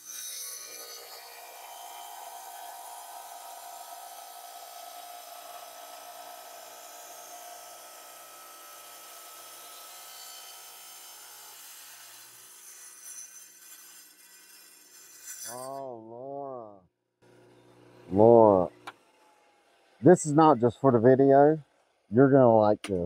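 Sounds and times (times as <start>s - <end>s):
diamond saw grinding rock: 0.0s - 16.0s, 18.1s - 19.0s
person speaking: 15.5s - 16.8s, 18.1s - 18.7s, 20.0s - 21.6s, 22.2s - 23.0s.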